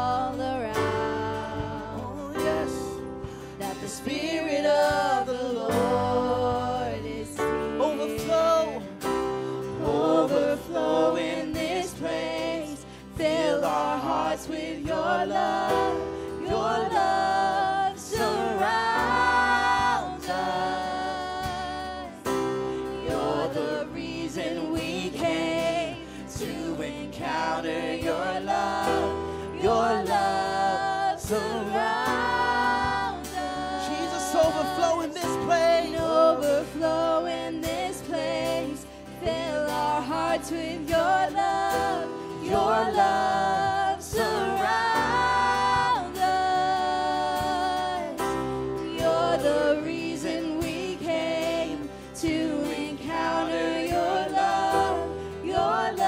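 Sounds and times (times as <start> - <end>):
man singing: 0.0 - 9.0, 33.8 - 38.6
band accompaniment: 0.0 - 56.0
strummed acoustic guitar: 0.0 - 56.0.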